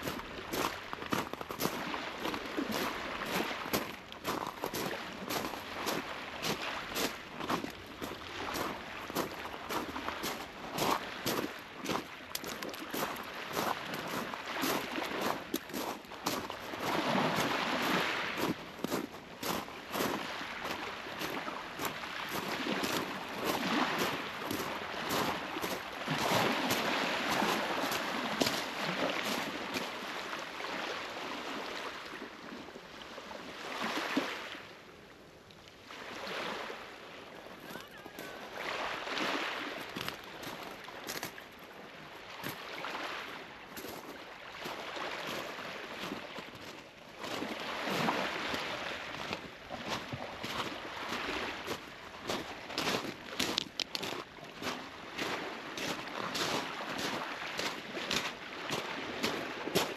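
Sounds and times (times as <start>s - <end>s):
small waves washing onto beach: 0.0s - 59.9s
sea surf washing: 12.9s - 18.6s, 19.8s - 32.1s, 37.4s - 41.2s
footsteps walking: 52.8s - 54.2s.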